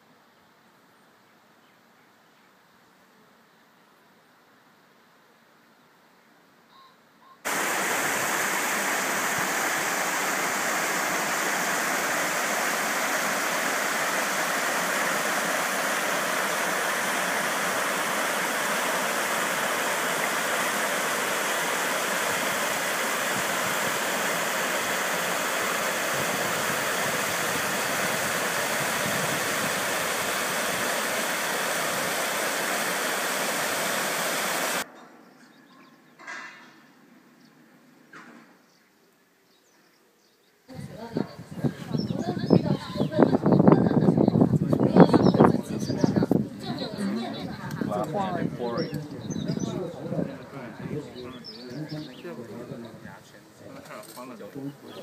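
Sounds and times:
stream rushing over rock: 7.5 - 34.9.

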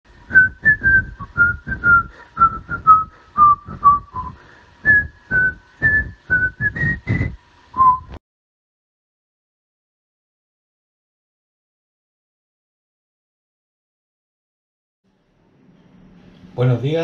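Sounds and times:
whistled tune with light beat: 0.3 - 8.2.

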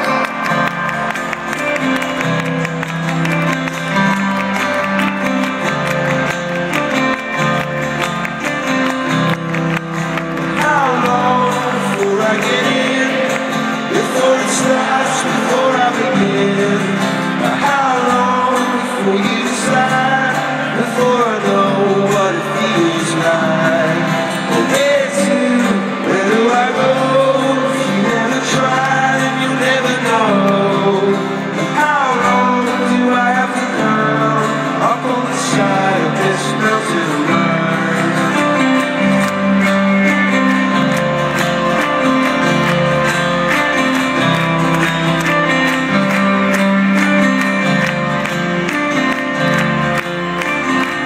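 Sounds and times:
strummed acoustic guitar: 0.0 - 51.0
man singing: 10.4 - 40.5.

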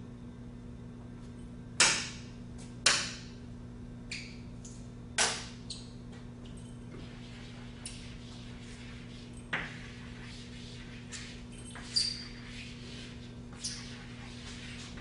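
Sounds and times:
low electrical hum: 0.0 - 15.0
chalk scratching on chalkboard: 6.9 - 15.0.

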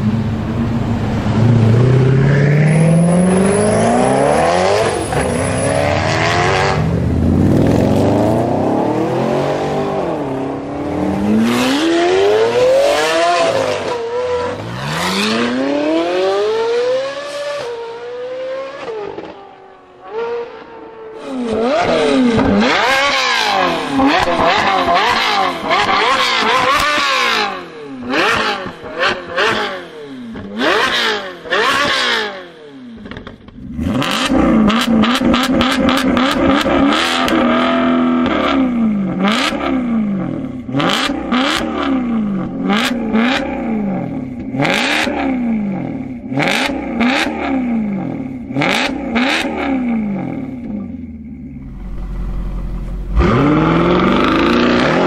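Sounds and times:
sports car engines accelerating: 0.0 - 55.0
engine revving in blips: 21.5 - 55.0.

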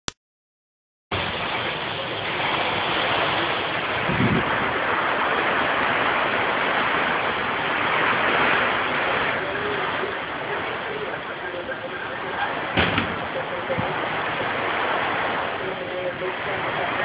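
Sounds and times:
hurricane wind and rain: 1.1 - 17.0
low thump: 12.8 - 13.3.

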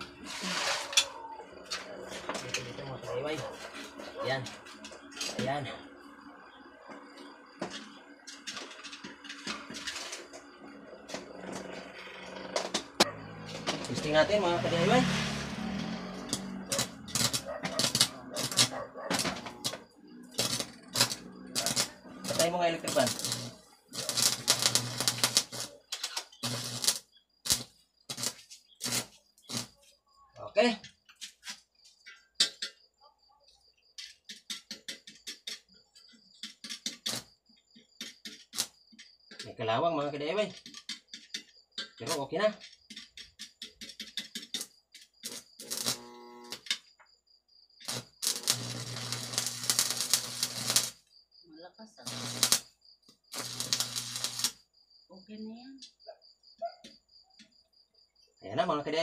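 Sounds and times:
welding arc crackling and sputtering: 11.1 - 29.8, 36.4 - 37.3, 38.0 - 38.8, 44.1 - 46.8, 47.8 - 51.0, 52.0 - 52.7, 53.3 - 54.6.

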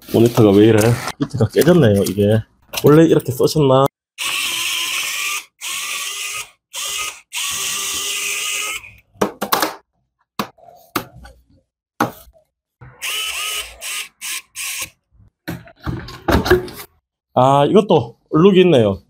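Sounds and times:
power tool motor whining: 4.2 - 9.0, 13.0 - 14.9.

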